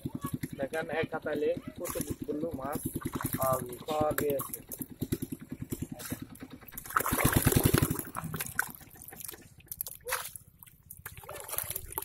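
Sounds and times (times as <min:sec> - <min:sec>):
muddy water sloshing and splashing: 0:00.0 - 0:12.0
water dripping: 0:02.6 - 0:05.3, 0:06.6 - 0:12.0.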